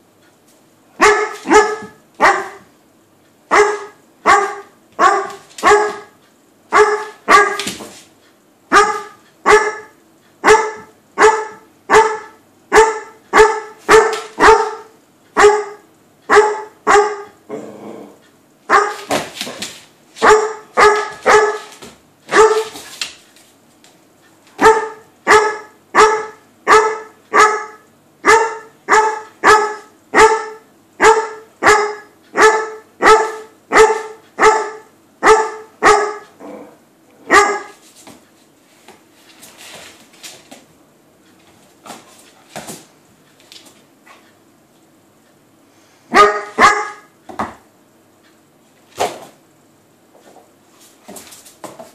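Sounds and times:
dog barking: 1.0 - 2.7, 3.5 - 7.7, 8.7 - 17.4, 18.7 - 19.1, 20.2 - 21.7, 22.3 - 22.8, 24.6 - 36.3, 37.2 - 37.8, 46.1 - 47.1.

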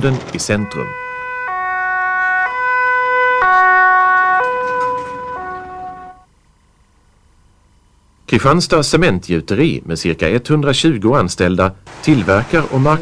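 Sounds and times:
two-tone fire truck siren: 0.4 - 6.3.

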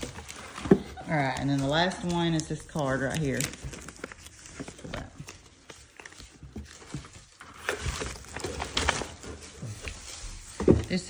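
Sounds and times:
paper and cardboard rustling: 0.0 - 11.0.

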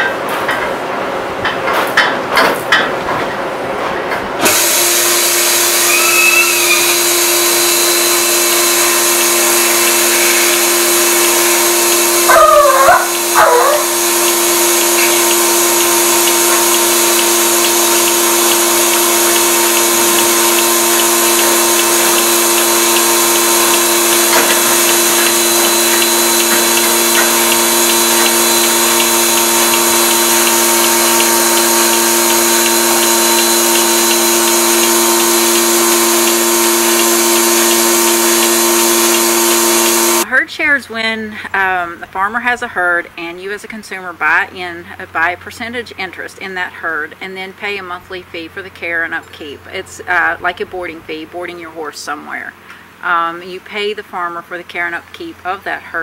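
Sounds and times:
milking machine hiss and hum: 3.5 - 40.4
short squeals: 5.7 - 15.3.

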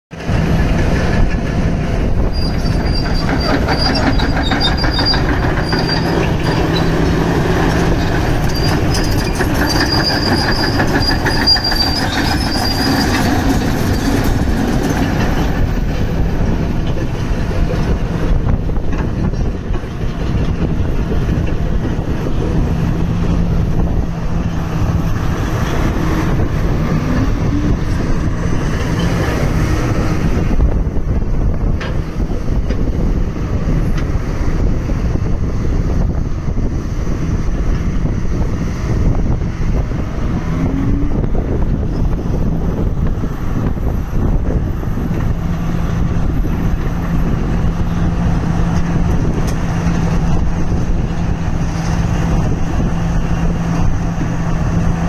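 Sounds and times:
excavator diesel engine idling: 2.9 - 29.9.

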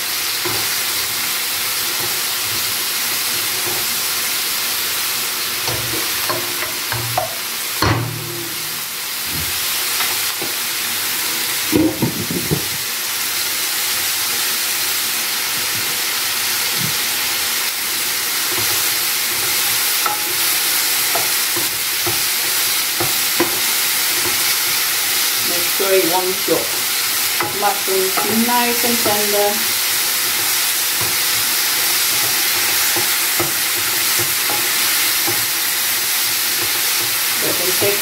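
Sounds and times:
mushrooms sizzling in frying pan: 0.0 - 38.0.

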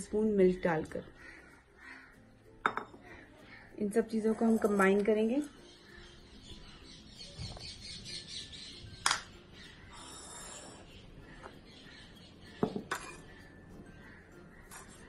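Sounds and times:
bowl knocking on countertop: 12.6 - 13.0.

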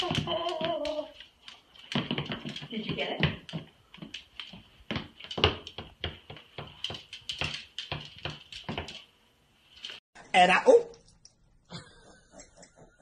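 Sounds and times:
footsteps on wooden floor: 0.0 - 9.1.

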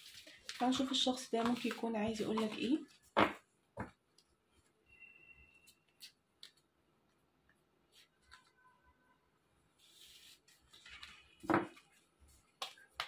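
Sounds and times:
cards sliding across cloth: 9.8 - 10.7.

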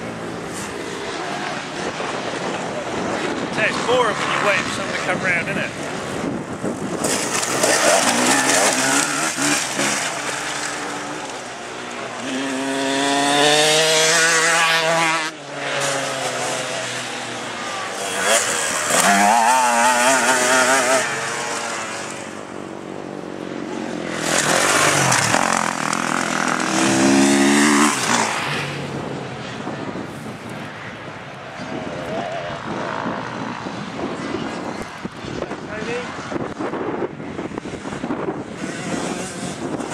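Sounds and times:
dirt bike engines revving: 0.0 - 39.9.

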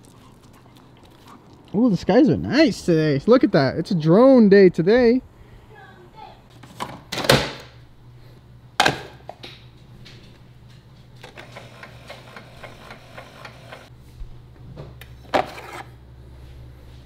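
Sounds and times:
coffee maker humming: 11.2 - 13.9.

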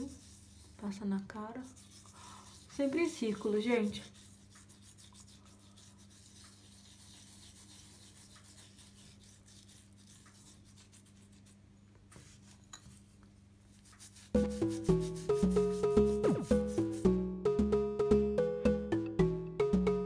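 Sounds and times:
gritty scrub rubbing on skin: 0.0 - 12.6, 13.7 - 17.1.

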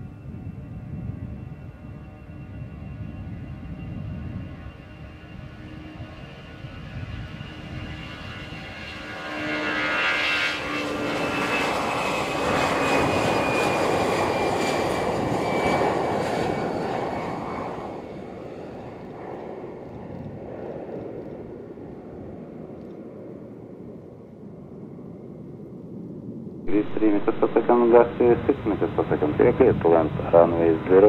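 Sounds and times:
jet engines roaring: 1.0 - 23.9, 26.7 - 31.0
high jet whine: 26.7 - 31.0.

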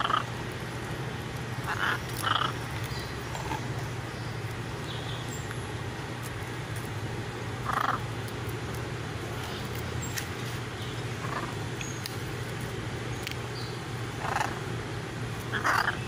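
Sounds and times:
macaws calling: 0.0 - 0.4, 1.6 - 3.7, 7.6 - 8.2, 11.0 - 12.0, 14.1 - 14.7, 15.4 - 16.0
steady low hum: 0.0 - 16.0.

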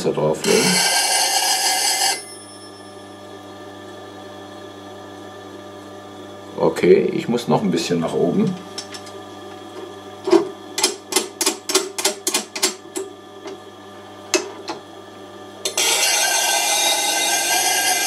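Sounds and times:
faint metallic ringing: 1.6 - 3.2.

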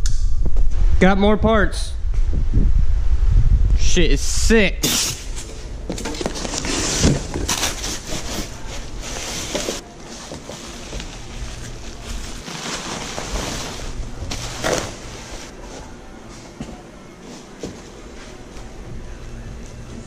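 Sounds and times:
cardboard and bubble wrap rustling: 5.4 - 16.0.

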